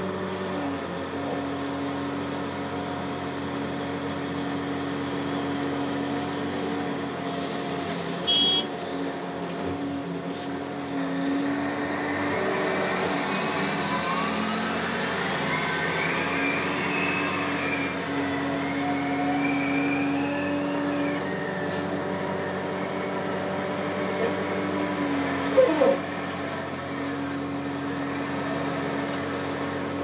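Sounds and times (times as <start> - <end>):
excavator diesel engine: 0.0 - 30.0
hydraulics working: 0.0 - 30.0
short loud beep: 8.3 - 8.7
rising whine: 11.0 - 30.0.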